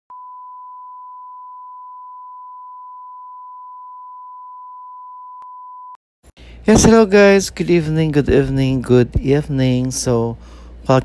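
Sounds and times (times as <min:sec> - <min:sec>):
steady test tone beep: 0:00.1 - 0:06.0.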